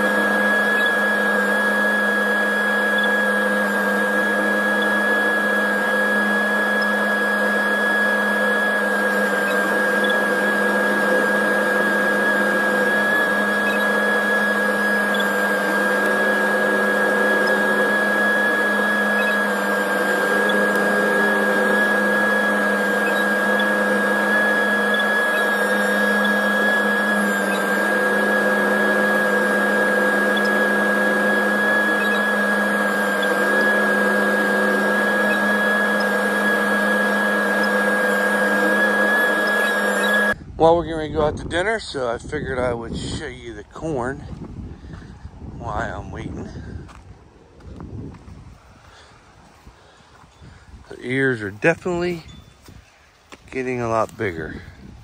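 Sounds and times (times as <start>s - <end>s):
steady high whine: 0.0s - 55.0s
tractor engine drone: 0.0s - 55.0s.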